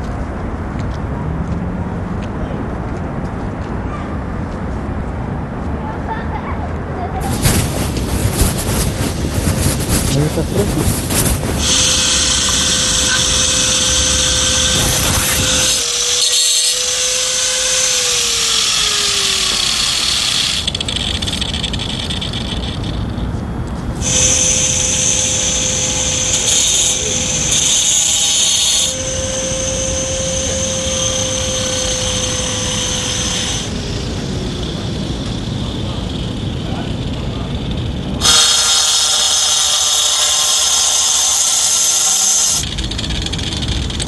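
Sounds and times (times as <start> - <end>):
loud high hiss of cutting: 7.2 - 23.2, 24.0 - 36.8, 38.2 - 43.8
power tool motor whine: 7.4 - 23.3, 24.0 - 36.6, 37.8 - 44.0.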